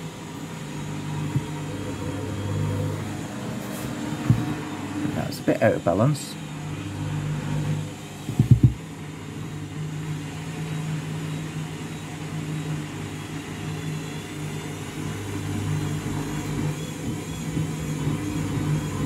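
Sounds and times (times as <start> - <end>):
washing machine spinning: 0.0 - 19.0.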